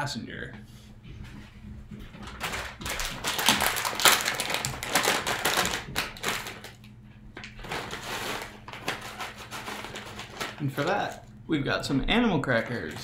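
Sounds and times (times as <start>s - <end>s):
plastic snack bag crinkling: 2.2s - 11.3s, 12.5s - 13.0s.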